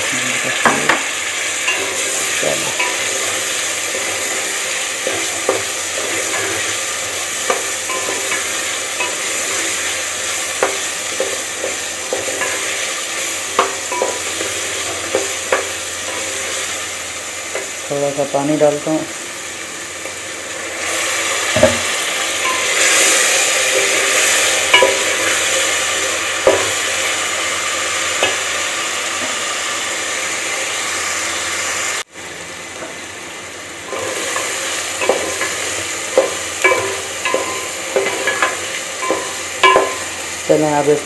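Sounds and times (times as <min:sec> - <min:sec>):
potatoes sizzling in oil: 0:00.0 - 0:41.0
spatula knocking against pot: 0:21.5 - 0:21.9.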